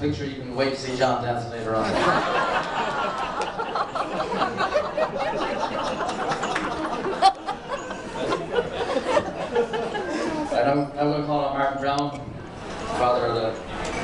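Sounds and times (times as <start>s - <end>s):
people chattering: 0.6s - 14.0s
crowd laughing: 1.8s - 10.6s.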